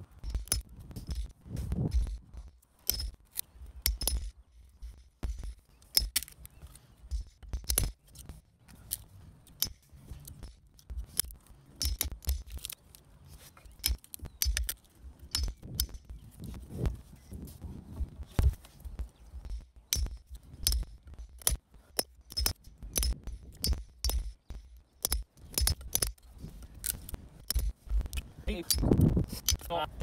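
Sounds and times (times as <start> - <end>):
hammer striking steel chisel: 2.9 - 3.2, 3.8 - 6.2, 11.2 - 12.5, 15.3 - 16.1, 19.5 - 26.2.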